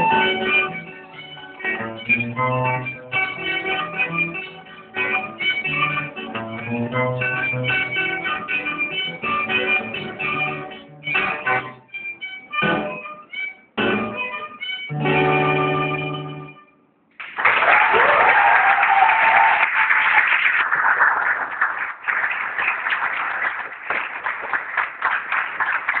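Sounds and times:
audience applause: 17.2s - 26.0s
audience whooping: 17.4s - 21.5s.

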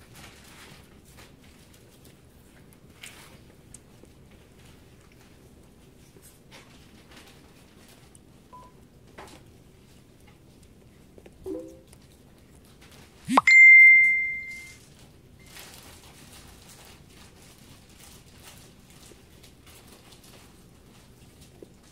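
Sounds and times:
high ringing ding: 13.3s - 14.8s.

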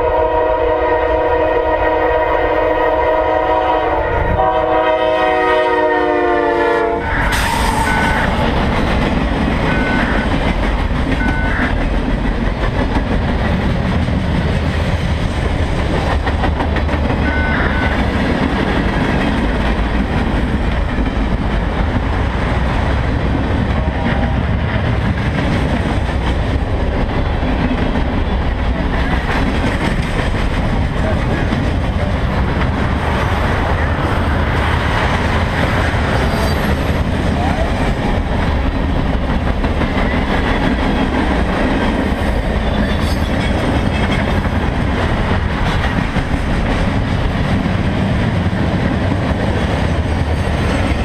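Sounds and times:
locomotive air horn: 0.0s - 8.5s, 9.7s - 10.3s, 11.2s - 11.8s, 17.2s - 18.1s
train cars rumbling and clattering: 0.0s - 51.0s.

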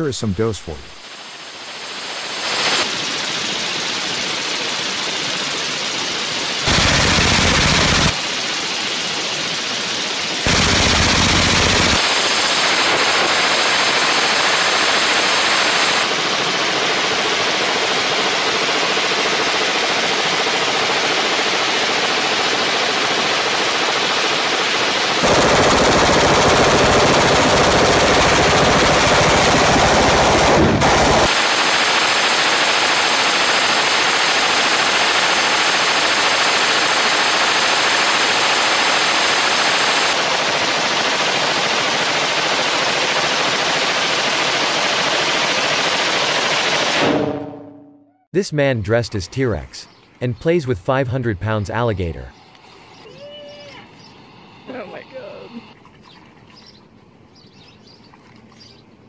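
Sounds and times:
machine gun full-auto fire: 2.6s - 47.6s.

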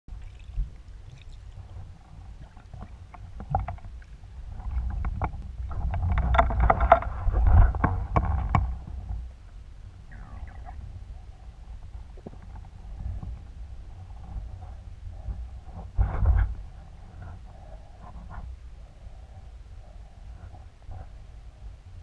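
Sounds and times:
bubbling: 0.1s - 5.2s, 10.1s - 11.0s
underwater rumble: 0.1s - 22.0s.

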